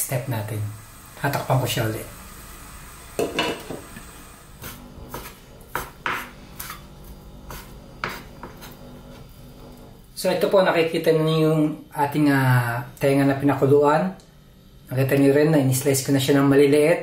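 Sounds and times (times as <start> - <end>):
knife chopping on wooden board: 4.6 - 6.8, 7.5 - 8.7.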